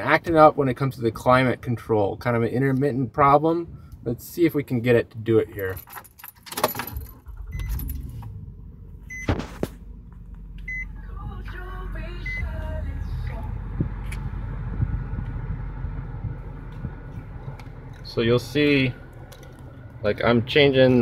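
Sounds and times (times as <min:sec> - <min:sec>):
keys jangling: 0:05.7 - 0:08.0
car engine starting and idling: 0:06.0 - 0:21.0.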